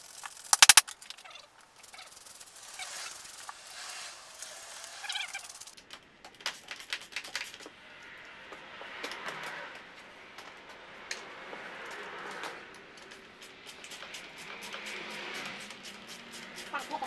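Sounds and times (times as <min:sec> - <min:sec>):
ratcheting screwdriver clicking: 0:00.1 - 0:01.0.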